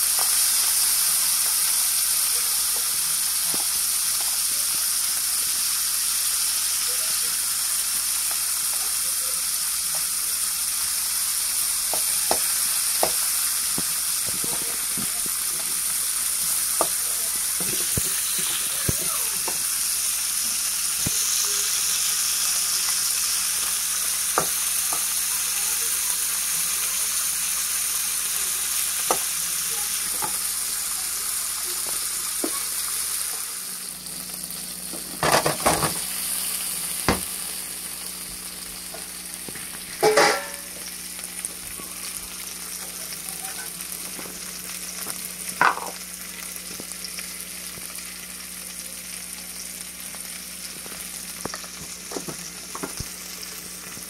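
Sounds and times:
prawns sizzling in oil: 0:00.0 - 0:54.0
spatula scraping and knocking pan: 0:39.9 - 0:40.7.

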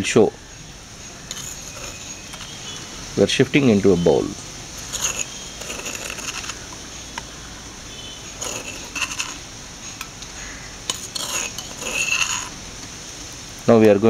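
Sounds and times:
metal bowl ringing: 0:01.0 - 0:02.9
spoon scraping stone mortar: 0:01.0 - 0:02.9, 0:04.8 - 0:07.3, 0:08.2 - 0:10.1, 0:10.8 - 0:12.6.

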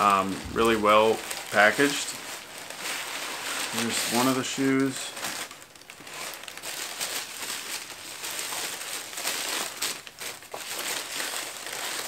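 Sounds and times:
tissue paper crinkling: 0:00.0 - 0:12.0.

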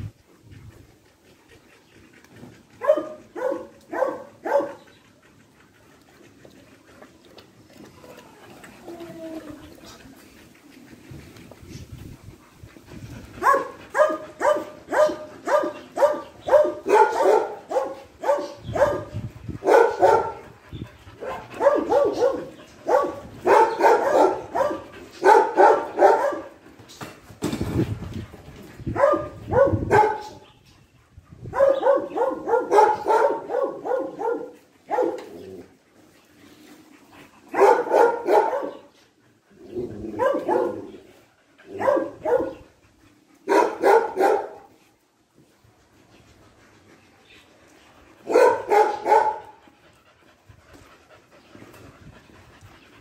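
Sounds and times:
dog barking: 0:02.8 - 0:04.8, 0:13.4 - 0:19.0, 0:19.7 - 0:20.4, 0:21.2 - 0:26.5, 0:29.0 - 0:30.2, 0:31.5 - 0:35.2, 0:37.6 - 0:38.8, 0:40.2 - 0:40.8, 0:41.8 - 0:42.6, 0:43.5 - 0:44.6, 0:48.3 - 0:49.4.

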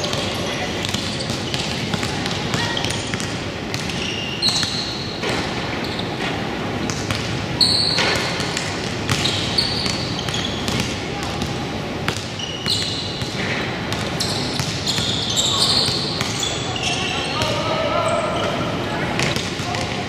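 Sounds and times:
sneaker squeaks: 0:00.0 - 0:19.8
basketball bouncing on floor: 0:00.8 - 0:05.5, 0:08.0 - 0:15.2.

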